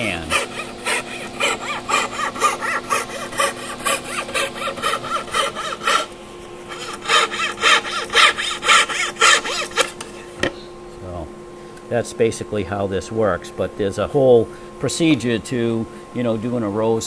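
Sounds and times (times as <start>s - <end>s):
hand saw rasping through veneer: 0.0s - 6.1s, 6.7s - 10.0s.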